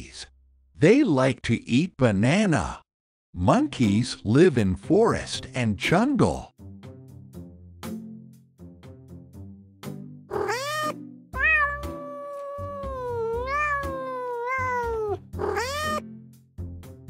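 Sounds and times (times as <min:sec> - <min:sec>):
cat meowing: 0:10.3 - 0:16.0.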